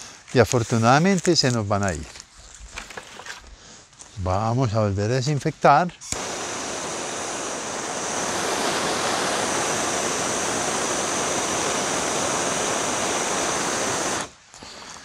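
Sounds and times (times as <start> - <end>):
gas torch hissing: 6.0 - 15.0.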